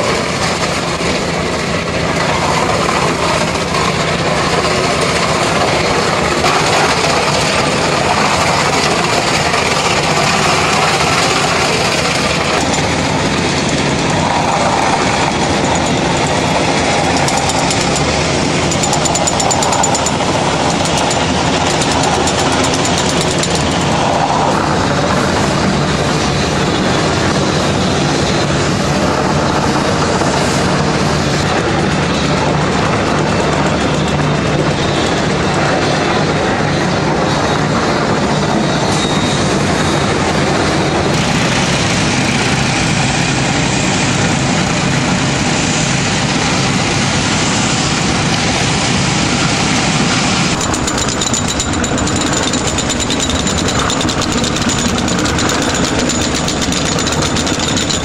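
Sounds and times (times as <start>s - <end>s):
high-pressure water jet blasting: 0.0s - 36.5s, 41.1s - 58.0s.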